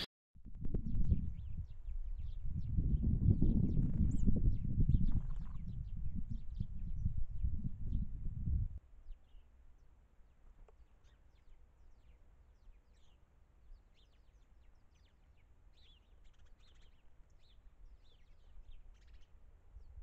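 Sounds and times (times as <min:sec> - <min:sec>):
songbirds chirping: 0:01.0 - 0:08.2, 0:08.8 - 0:20.0.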